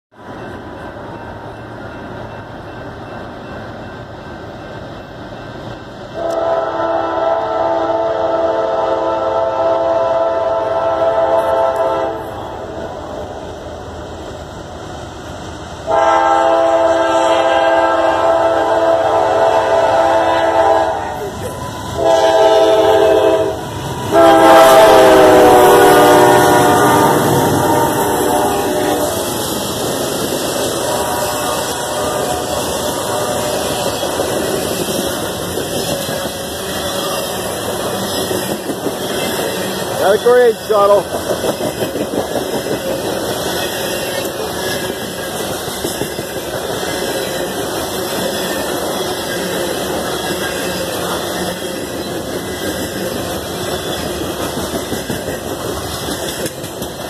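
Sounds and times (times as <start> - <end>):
approaching train noise: 0.1 - 57.0
locomotive air horn chord: 6.2 - 12.4, 15.9 - 21.3, 21.9 - 29.3, 30.7 - 33.8.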